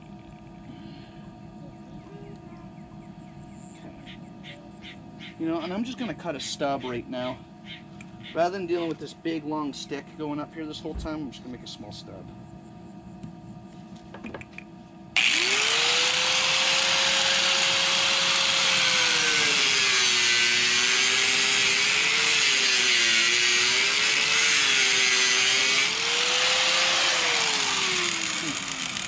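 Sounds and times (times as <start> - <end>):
power tool cutting plastic pipe: 15.2 - 29.0.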